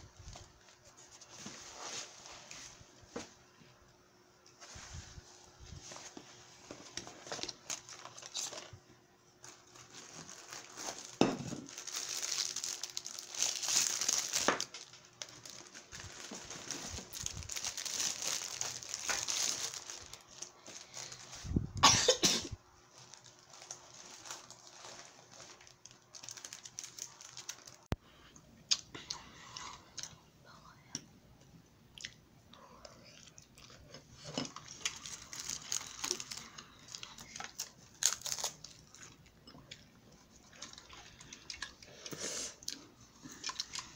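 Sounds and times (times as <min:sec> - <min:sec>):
plastic wrapping rustling: 0:04.6 - 0:08.8, 0:09.4 - 0:28.0, 0:34.2 - 0:39.2.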